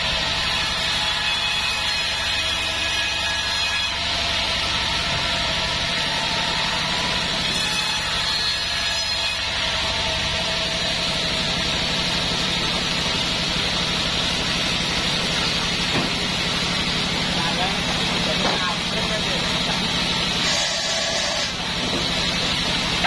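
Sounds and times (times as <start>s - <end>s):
band saw drive humming: 3.8s - 23.0s
band blade hissing: 20.4s - 21.6s.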